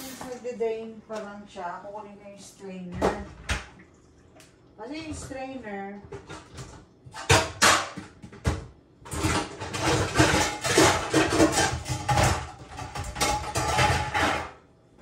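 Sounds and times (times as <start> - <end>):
metal kitchenware clattering: 0.0 - 0.6, 6.1 - 8.2, 9.0 - 14.6.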